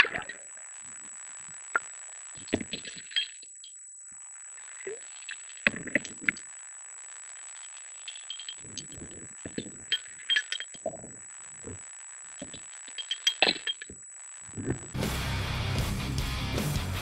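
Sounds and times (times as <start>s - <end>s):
steady high whine: 0.0s - 16.6s
electric guitar rock music: 14.9s - 17.0s.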